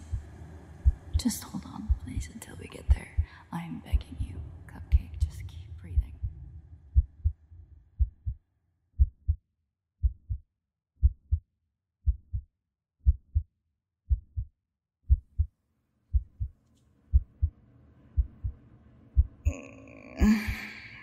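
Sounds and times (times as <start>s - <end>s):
heartbeat: 0.0s - 7.4s, 8.0s - 8.4s, 9.0s - 9.4s, 10.0s - 10.4s, 11.0s - 13.5s, 14.1s - 14.5s, 15.1s - 15.5s, 16.1s - 17.5s, 18.2s - 19.6s.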